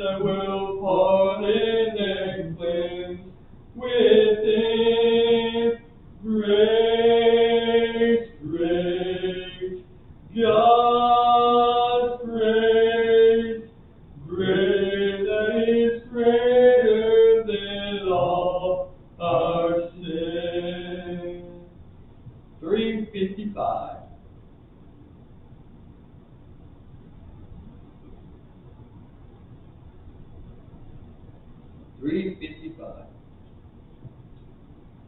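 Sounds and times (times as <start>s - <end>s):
slow hymn singing: 0.0s - 24.2s.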